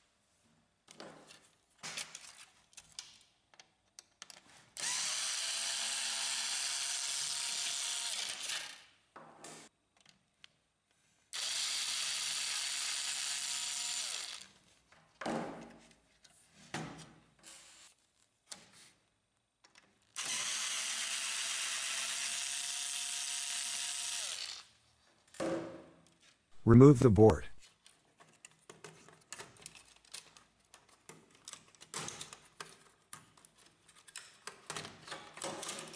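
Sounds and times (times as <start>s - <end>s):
electric screwdriver motor whirring: 4.8s - 8.8s, 11.4s - 14.5s, 20.2s - 24.7s.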